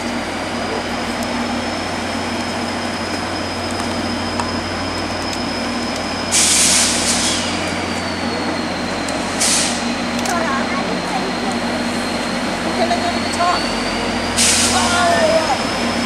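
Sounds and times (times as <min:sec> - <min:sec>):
diesel locomotive engine drone: 0:00.0 - 0:16.0
high whine: 0:00.0 - 0:16.0
air release hiss: 0:06.3 - 0:07.6, 0:09.2 - 0:09.9, 0:14.4 - 0:14.9.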